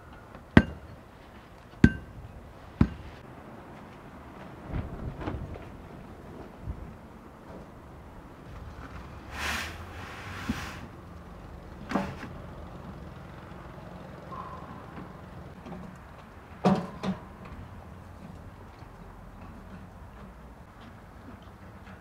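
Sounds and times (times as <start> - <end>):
sharp knocks: 1.8 - 2.2
rushing scrape: 9.2 - 10.9.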